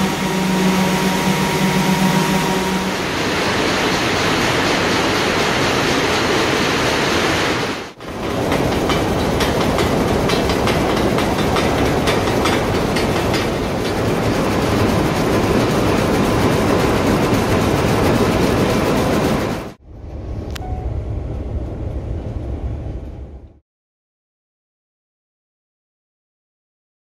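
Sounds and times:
loud mill machinery noise: 0.0s - 19.8s
loom clattering rapidly: 8.0s - 19.8s.

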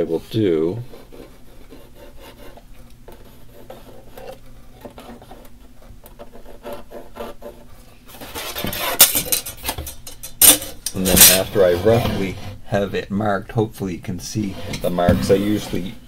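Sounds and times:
pencil scratching on metal frame: 0.8s - 12.9s, 14.4s - 16.0s
loud scrape: 8.1s - 12.8s, 14.4s - 16.0s.

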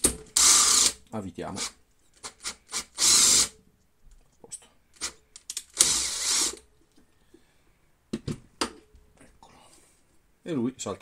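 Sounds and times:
cordless drill running: 0.4s - 1.0s, 1.6s - 3.5s, 5.8s - 6.6s.

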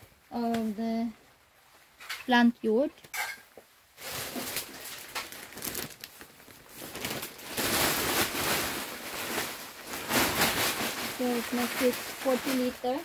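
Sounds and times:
plastic sack crinkling: 4.0s - 13.0s
soil pouring and pattering: 4.0s - 13.0s.

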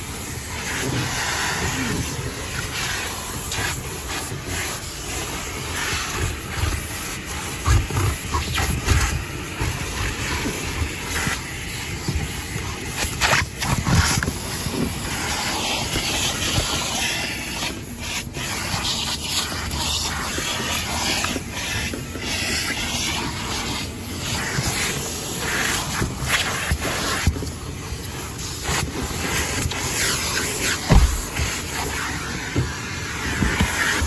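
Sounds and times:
nozzle rubbing over fabric: 0.0s - 34.0s
vacuum cleaner hissing: 0.0s - 34.0s.

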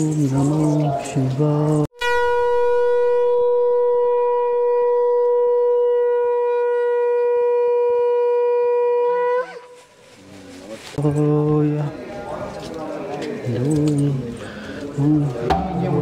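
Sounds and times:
conch shell blown: 1.9s - 10.0s.

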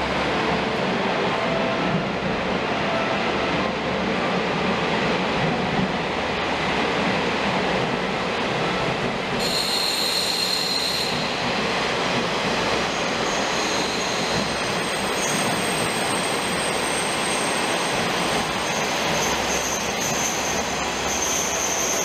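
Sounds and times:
high-pitched wheel squeal: 9.4s - 11.4s, 12.9s - 22.0s.

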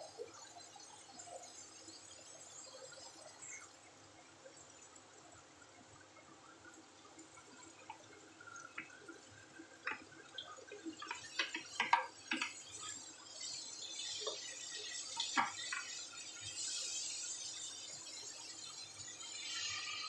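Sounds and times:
vegetables sizzling: 9.8s - 20.0s
vegetable pieces tapping in wok: 11.0s - 12.6s.

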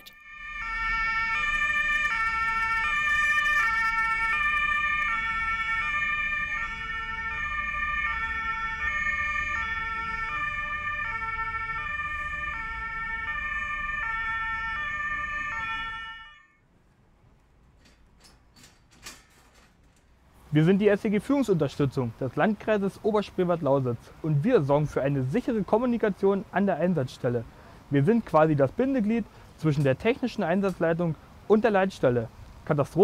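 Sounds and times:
two-tone emergency siren: 0.0s - 16.6s.

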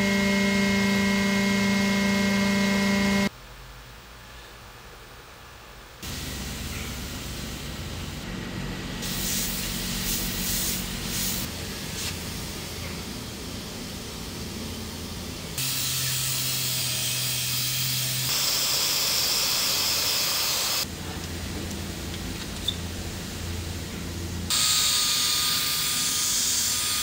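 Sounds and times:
low machine hum: 0.0s - 4.7s, 6.0s - 18.3s, 20.8s - 24.9s
pneumatic sander air hiss: 9.0s - 13.6s, 15.6s - 20.9s, 24.5s - 27.0s.

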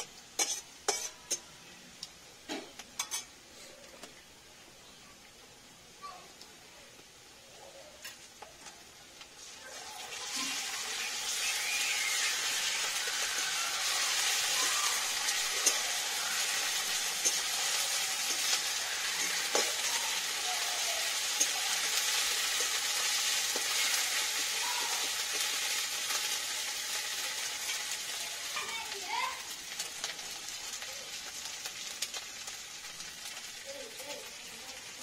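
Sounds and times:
metal spatula scraping pan: 0.0s - 1.4s, 3.0s - 3.3s, 15.0s - 19.9s
food sizzling in hot oil: 0.0s - 3.4s, 4.2s - 35.0s
spatula knocking pan: 15.3s - 19.9s.

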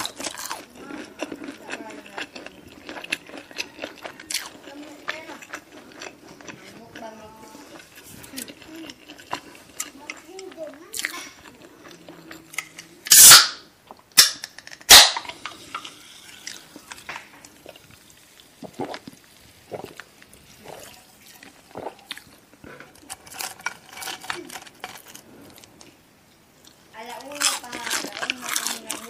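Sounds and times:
sharp cracks of crispy food: 0.0s - 6.4s, 12.5s - 17.5s, 22.9s - 25.7s, 27.1s - 29.0s
crunching and chewing: 0.0s - 29.0s.

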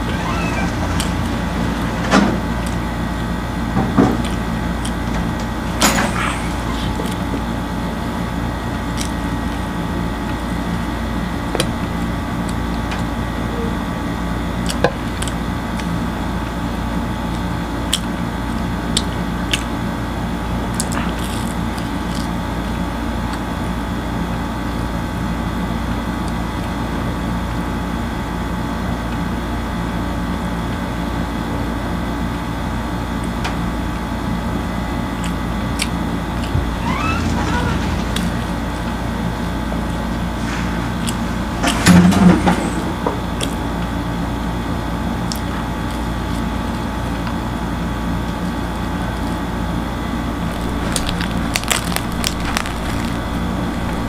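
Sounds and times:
steady mechanical hum: 0.0s - 54.0s
crackles of chewing flatbread: 17.3s - 23.5s, 50.5s - 54.0s.

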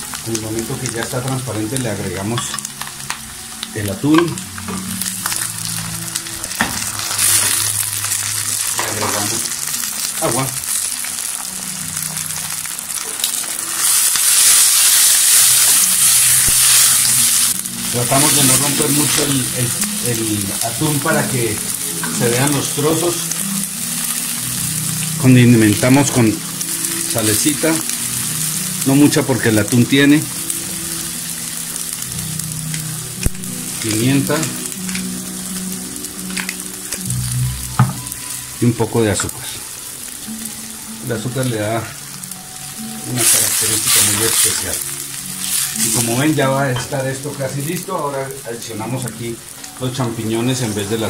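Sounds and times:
food sizzling in a pan: 0.0s - 51.0s
water poured into hot pan hissing: 12.2s - 21.6s.

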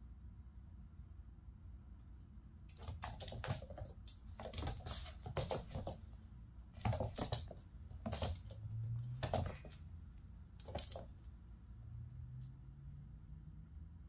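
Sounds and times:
kitten paws tapping on wooden floor: 2.7s - 6.2s, 6.8s - 9.9s, 10.6s - 11.4s.

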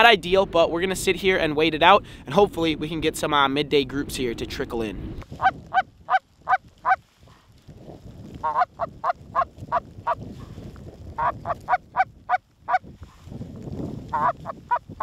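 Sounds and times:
goose honking and clucking: 5.4s - 7.0s, 8.4s - 10.2s, 11.2s - 12.8s, 14.1s - 14.8s.

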